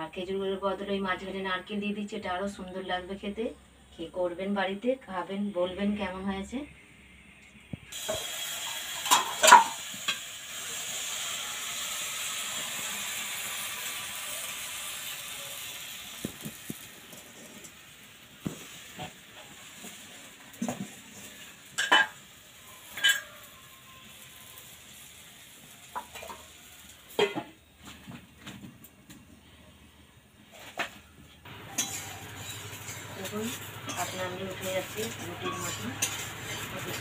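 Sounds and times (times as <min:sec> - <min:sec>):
batter sizzling in a pan: 0:07.9 - 0:27.7, 0:31.5 - 0:37.0
utensils clinking against a pan: 0:08.0 - 0:10.2, 0:19.0 - 0:24.0, 0:25.8 - 0:27.6, 0:31.5 - 0:37.0.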